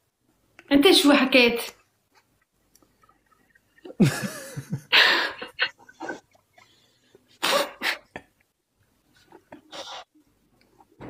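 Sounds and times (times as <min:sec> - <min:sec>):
people laughing hard: 0:03.9 - 0:06.1.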